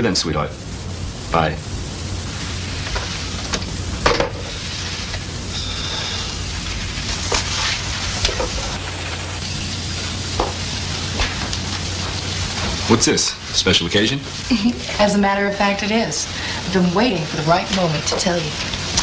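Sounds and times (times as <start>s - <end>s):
steady hiss: 0.0s - 19.0s
low hum: 0.7s - 13.6s.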